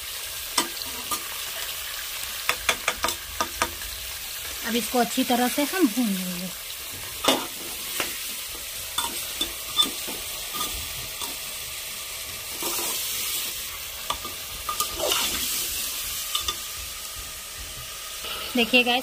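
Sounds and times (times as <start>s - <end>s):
meat sizzling in hot oil: 0.0s - 19.0s
ladle scraping and clinking pot: 9.0s - 11.4s, 14.1s - 15.6s, 16.3s - 16.7s.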